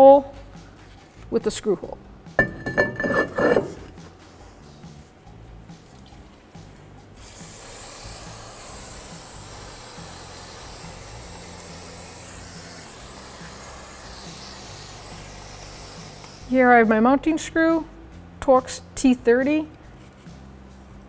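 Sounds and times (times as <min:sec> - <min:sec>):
aerosol spray hissing: 0:07.2 - 0:16.8.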